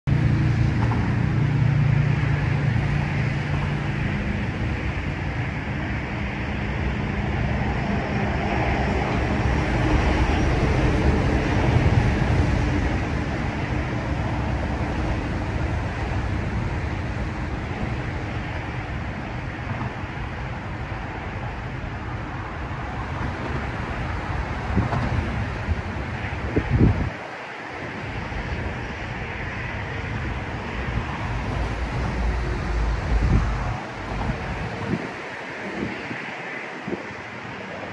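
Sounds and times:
road traffic noise: 0:00.0 - 0:37.9
low engine hum: 0:00.1 - 0:27.2, 0:28.0 - 0:37.9.

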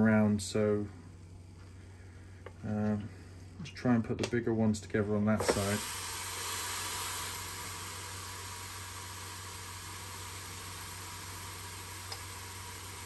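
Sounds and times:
chicken sizzling on grill: 0:05.4 - 0:13.0.

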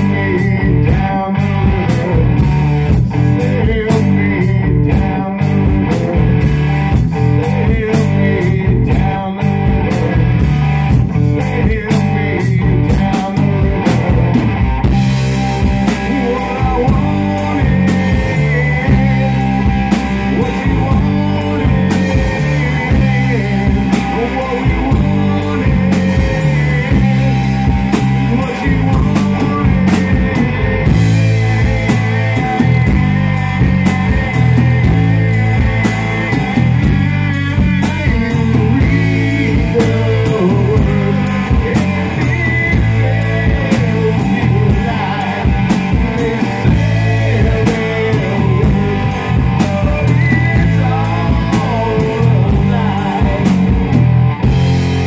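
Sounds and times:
person singing into microphone: 0:00.0 - 0:54.6
bass guitar: 0:00.0 - 0:55.0
drum kit beat: 0:00.0 - 0:55.0
electric guitar: 0:00.0 - 0:55.0.

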